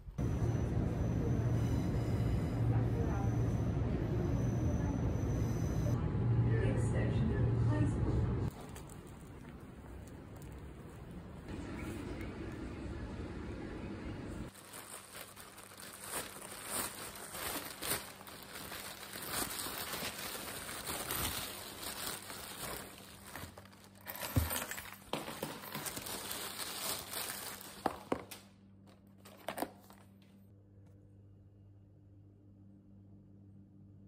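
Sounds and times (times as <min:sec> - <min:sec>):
plastic bag rustling: 0:08.5 - 0:11.4, 0:14.5 - 0:28.4.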